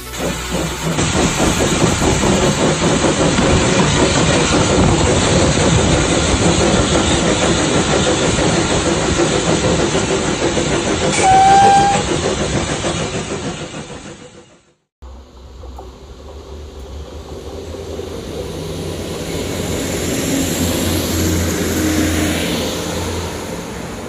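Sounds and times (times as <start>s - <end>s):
steam locomotive running: 0.0s - 24.0s
steam whistle blast: 11.1s - 12.1s.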